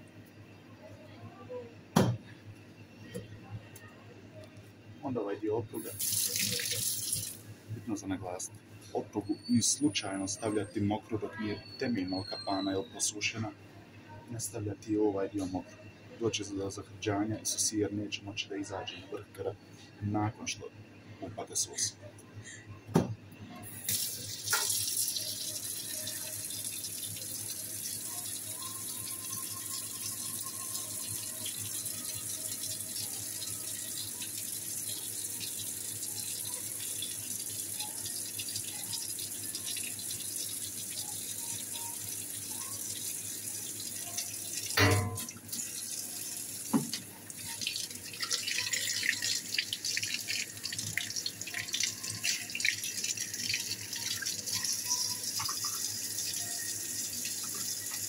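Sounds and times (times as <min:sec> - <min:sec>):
tap running into metal sink: 0:24.5 - 0:25.0, 0:44.7 - 0:45.4, 0:46.7 - 0:47.1, 0:55.0 - 0:55.8.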